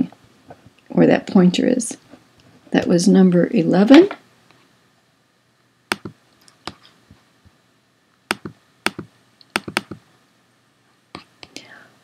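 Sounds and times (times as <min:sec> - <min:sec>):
computer mouse clicking: 0:05.9 - 0:06.9, 0:08.3 - 0:10.0.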